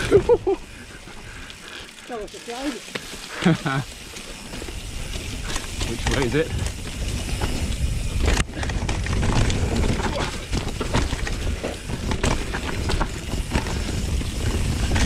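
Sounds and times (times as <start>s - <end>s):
bike rattling over bumps: 0.0s - 15.0s
tyres on dirt and dry leaves: 0.0s - 15.0s
wind rumbling on microphone: 4.4s - 15.0s.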